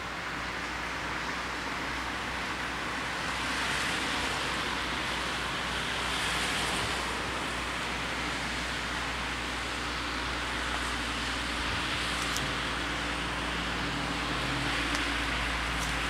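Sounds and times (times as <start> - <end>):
cars passing on road: 0.0 - 16.0.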